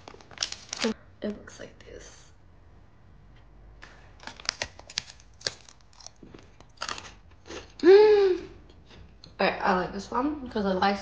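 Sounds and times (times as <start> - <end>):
crunchy cracker being chewed: 4.2 - 7.8
person humming: 7.8 - 8.6.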